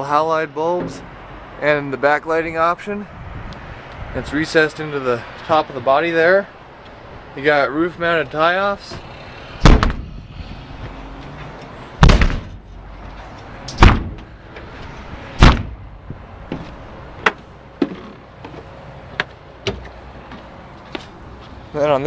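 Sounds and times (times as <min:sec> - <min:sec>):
footsteps on metal plate: 0:15.5 - 0:21.6.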